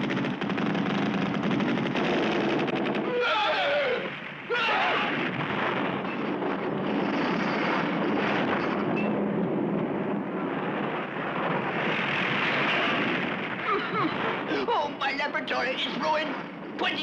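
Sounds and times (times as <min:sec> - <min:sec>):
cartoon explosion blast: 0:00.0 - 0:08.7, 0:11.4 - 0:14.7
cartoon falling cries: 0:03.0 - 0:05.3
rumble of crashing debris: 0:04.1 - 0:15.1.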